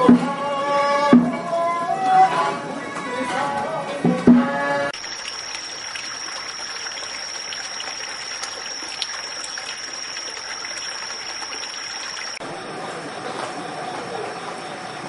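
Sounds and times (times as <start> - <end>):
trickle of running water: 5.0 - 12.4
constant high-pitched tone: 5.0 - 15.0.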